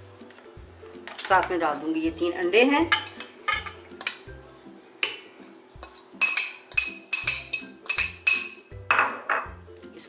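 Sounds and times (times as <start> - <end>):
spoon clinking on steel bowl: 2.9 - 4.3, 5.0 - 9.5
metal spoon scraping a plate: 5.4 - 9.3.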